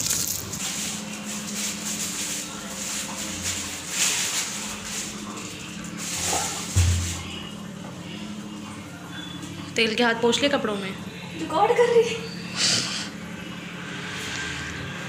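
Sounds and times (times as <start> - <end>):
plastic bag rustling: 0.0 - 7.6.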